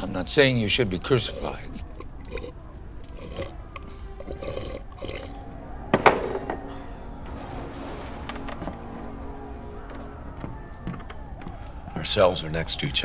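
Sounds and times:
person slurping and swallowing: 1.3s - 3.5s, 4.2s - 5.3s
low music notes: 3.8s - 13.0s.

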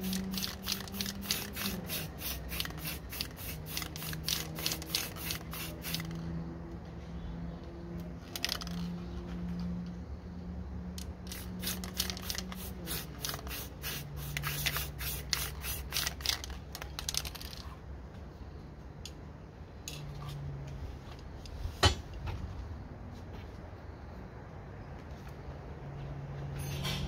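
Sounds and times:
spray paint can hissing: 0.0s - 6.2s, 11.2s - 17.6s.

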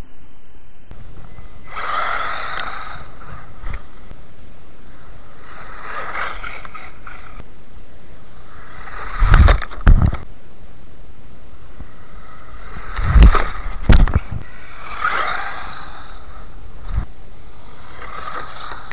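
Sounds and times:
toy car motor whining: 1.3s - 4.2s, 4.8s - 7.4s, 8.2s - 10.3s, 11.8s - 18.9s.

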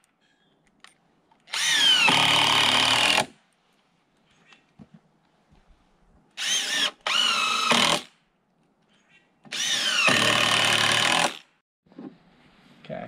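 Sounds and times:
cordless drill driving screws: 1.5s - 3.3s, 6.4s - 8.1s, 9.5s - 11.4s.

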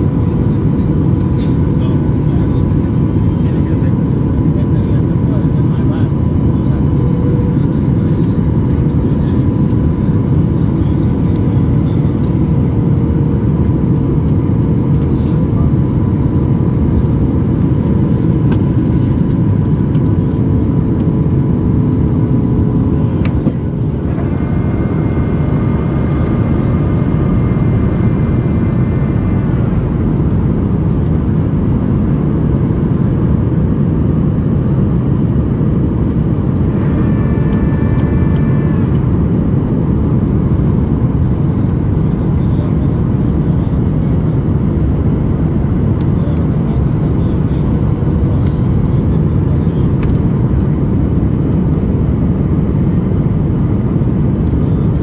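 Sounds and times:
airplane cabin airflow and engines: 0.0s - 55.0s
high whine: 16.6s - 55.0s.

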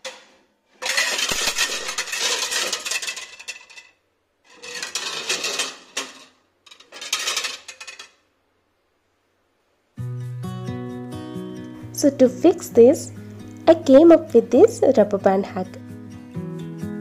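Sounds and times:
plates rattling in wire rack: 0.0s - 3.9s, 4.5s - 8.2s.

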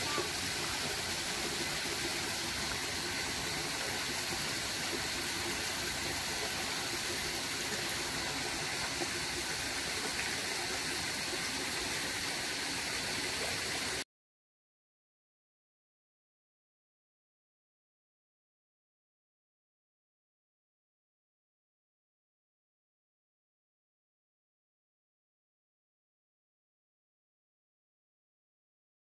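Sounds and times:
stream rushing among boulders: 0.0s - 14.0s.

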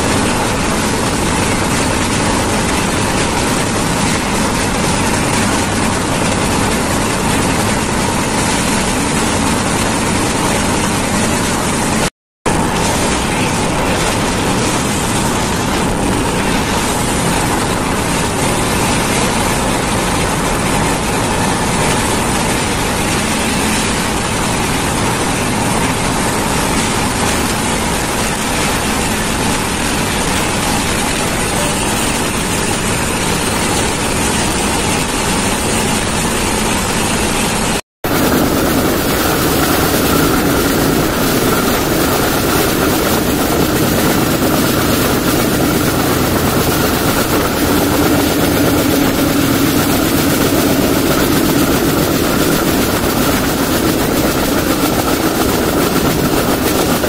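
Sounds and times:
rushing air: 0.0s - 57.0s
train wheels rumbling on rails: 0.0s - 57.0s.

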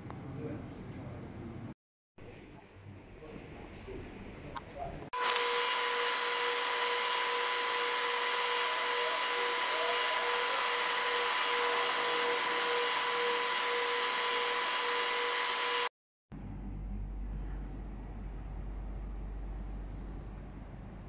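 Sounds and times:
machine whirring with high whine: 5.2s - 15.9s.

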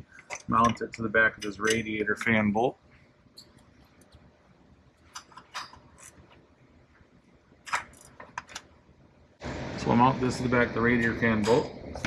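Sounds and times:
tools clicking and tapping: 0.1s - 2.4s.

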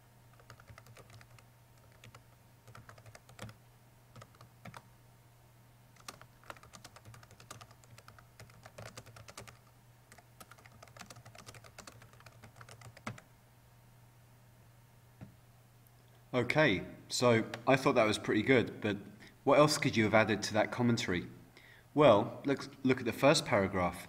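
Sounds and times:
faint steady hum: 0.0s - 24.0s
keyboard typing: 0.3s - 4.9s, 6.0s - 13.3s.

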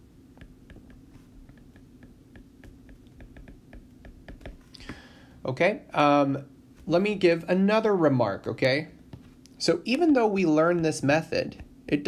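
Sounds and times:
low steady hum: 0.0s - 12.0s
stylus tapping on tablet screen: 0.3s - 5.0s.

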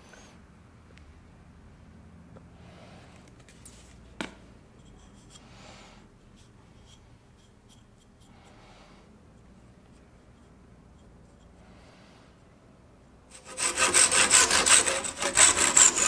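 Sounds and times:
fingertip rubbing on wood: 13.4s - 16.0s.

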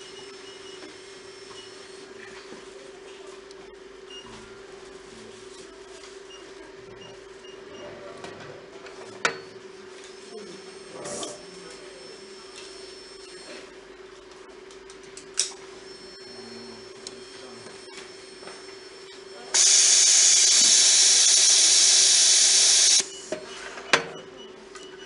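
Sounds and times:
machine fan humming: 19.5s - 23.4s
compressed air hissing: 19.6s - 23.1s.

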